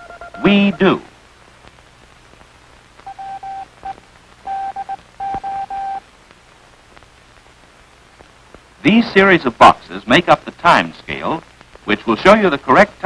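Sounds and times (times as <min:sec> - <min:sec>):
morse code beeping: 0:00.0 - 0:00.8, 0:03.1 - 0:06.0.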